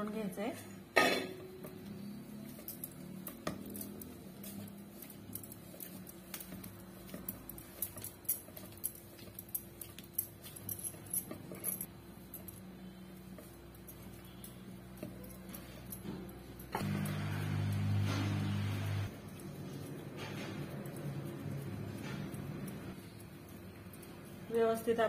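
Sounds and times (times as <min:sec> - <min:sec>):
glass bangles clinking: 0:01.0 - 0:17.8
hands kneading dough: 0:01.5 - 0:17.8, 0:18.4 - 0:25.0.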